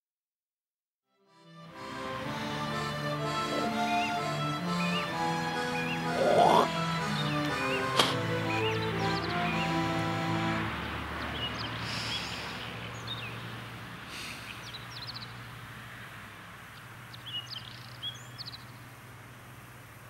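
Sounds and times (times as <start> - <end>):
music: 1.1 - 11.2
small birds chirping: 3.3 - 10.1, 11.2 - 15.6, 16.6 - 19.7.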